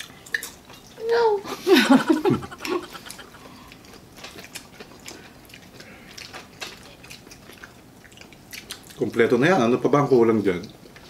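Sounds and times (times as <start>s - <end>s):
chewing: 0.0s - 1.0s, 2.0s - 9.4s, 10.3s - 11.0s
lip smacks: 2.2s - 9.2s.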